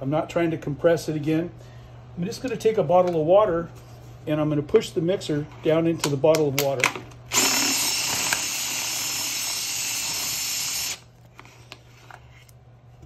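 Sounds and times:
drill mixer churning water: 7.3 - 11.1.

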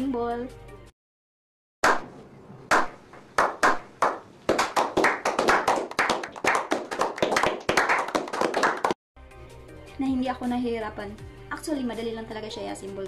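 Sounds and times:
people clapping: 2.7 - 9.0.

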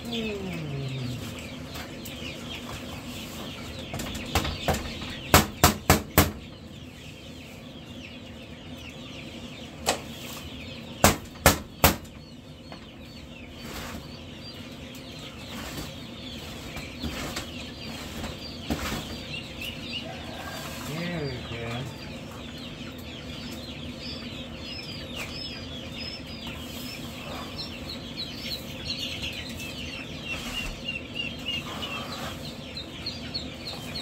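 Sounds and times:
chicks peeping: 0.0 - 34.0
sharp knocks: 4.0 - 6.4.

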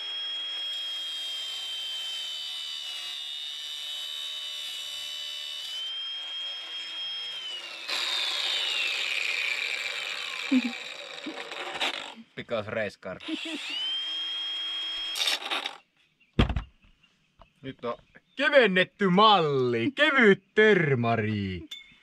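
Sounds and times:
grinder cutting metal: 0.0 - 12.2, 13.2 - 15.8
angle grinder whine: 5.8 - 12.2, 13.2 - 15.8.

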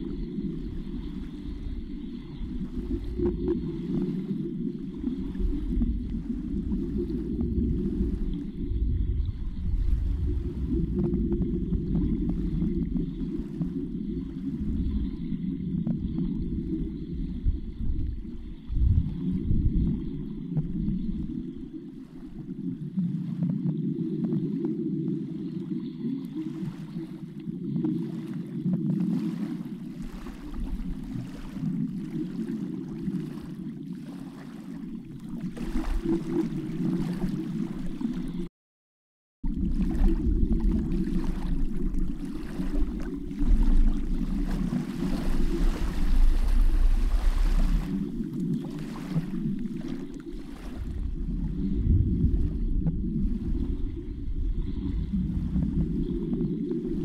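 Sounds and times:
underwater water rushing: 0.0 - 38.5, 39.4 - 57.0.

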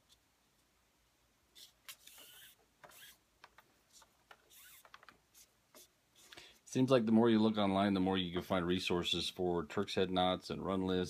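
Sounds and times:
cord rustling and scraping: 1.5 - 6.7.

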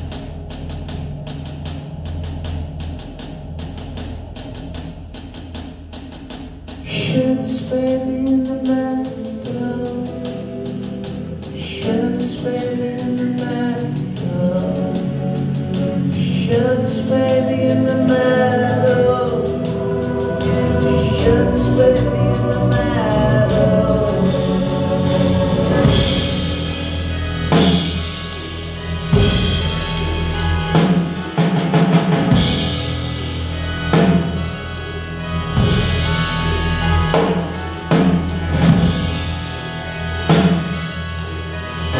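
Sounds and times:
drum kit: 0.0 - 41.9
man singing: 6.8 - 10.8, 11.4 - 26.6
keyboard chords: 13.8 - 41.9.

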